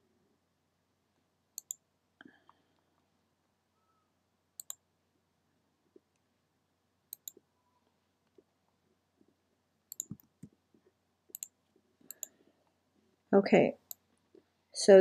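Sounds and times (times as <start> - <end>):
computer mouse clicking: 1.6 - 1.8, 4.6 - 4.8, 7.1 - 7.4, 9.9 - 10.6, 11.3 - 12.4.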